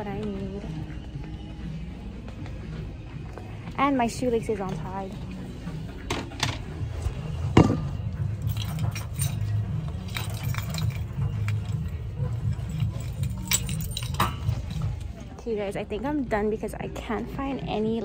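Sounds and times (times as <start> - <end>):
small metallic clinks: 8.4 - 15.0.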